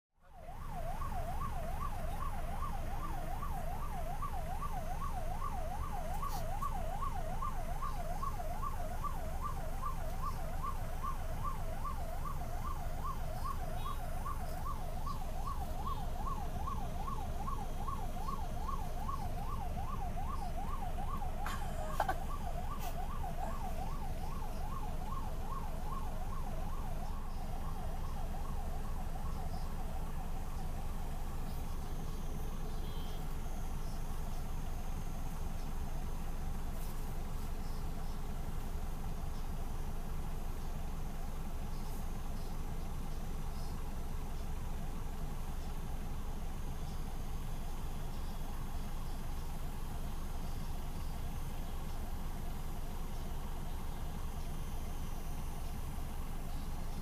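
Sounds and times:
siren yelping: 0.2s - 35.9s
idling traffic rumble: 0.2s - 57.0s.

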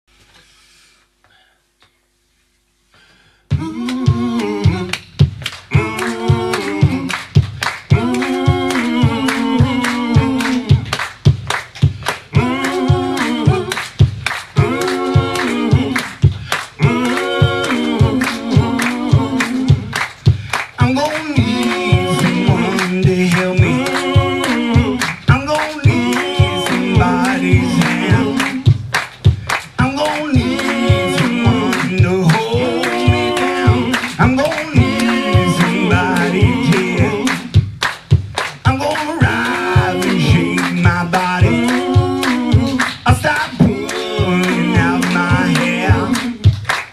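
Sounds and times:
voices singing in harmony: 3.5s - 5.0s, 5.6s - 11.1s, 12.1s - 29.0s, 29.6s - 37.6s, 38.7s - 46.8s
sharp clicks marking a beat: 3.8s - 46.9s
upright double bass: 21.4s - 46.6s.

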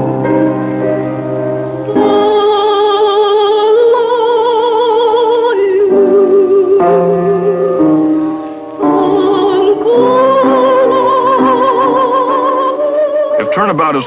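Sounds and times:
piano chords: 0.0s - 14.0s
woman singing: 1.9s - 8.0s, 8.8s - 13.4s.

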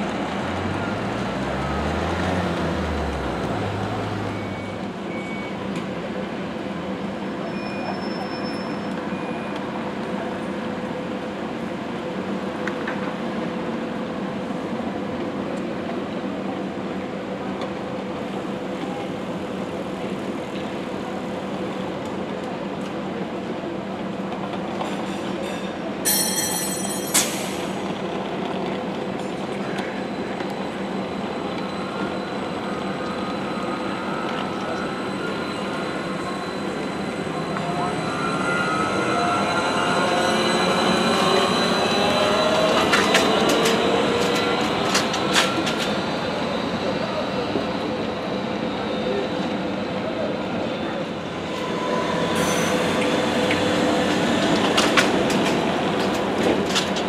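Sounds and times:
street traffic: 0.0s - 12.0s, 24.1s - 57.0s
trolleybus electric hum: 0.0s - 57.0s.

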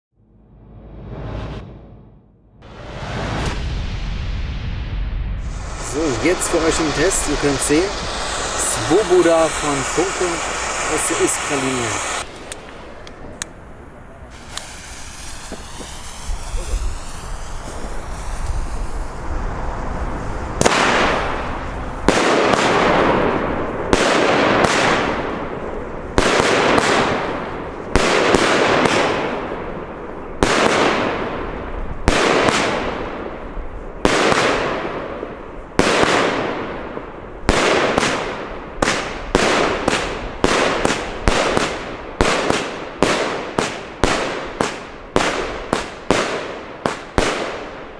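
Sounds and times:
crackle of firework bursts: 2.6s - 47.9s
firework fuse hissing: 5.3s - 22.9s
firework shots banging: 5.4s - 13.6s, 14.3s - 18.8s, 20.6s - 29.6s, 30.4s - 33.4s, 34.0s - 47.9s.

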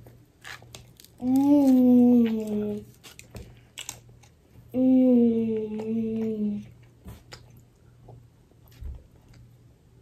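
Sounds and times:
boy humming with mouth full: 4.7s - 6.7s.

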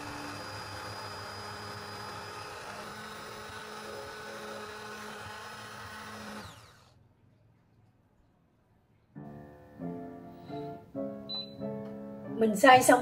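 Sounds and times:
immersion blender motor whine: 0.0s - 7.0s.

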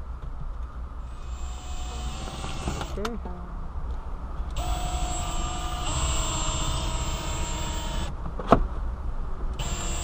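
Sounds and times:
mechanical drone with whining tones: 1.0s - 3.1s, 4.5s - 8.2s, 9.5s - 10.0s.

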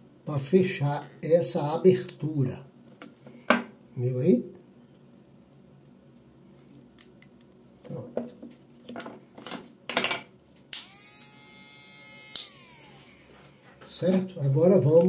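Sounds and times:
hair clipper motor humming: 10.7s - 13.8s.

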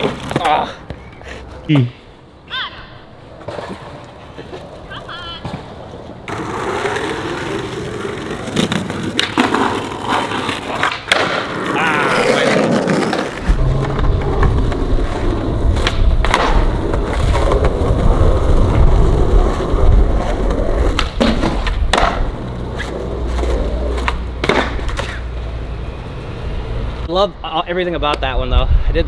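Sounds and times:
skateboard wheels rolling on concrete: 0.0s - 29.0s
skateboard clacks: 6.3s - 18.0s, 18.6s - 25.3s.

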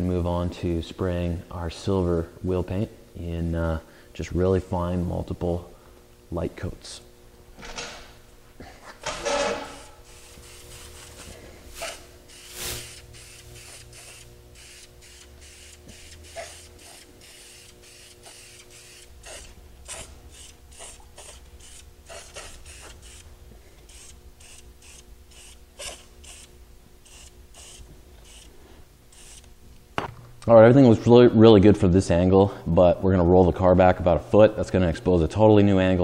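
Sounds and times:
paint sprayer hissing bursts: 9.6s - 29.5s.

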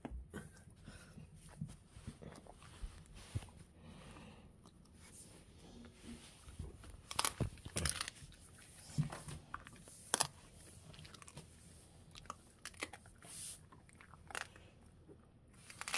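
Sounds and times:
dog crunching hard treat: 7.0s - 8.6s, 9.4s - 11.5s, 12.1s - 14.7s.

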